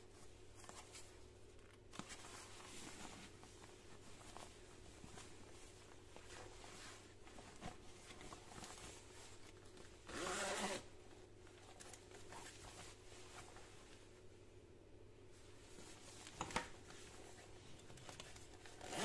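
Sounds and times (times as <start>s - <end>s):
fabric rustling: 0.0s - 14.4s, 15.3s - 19.0s
zipper pulled open: 10.1s - 10.9s, 18.8s - 19.0s.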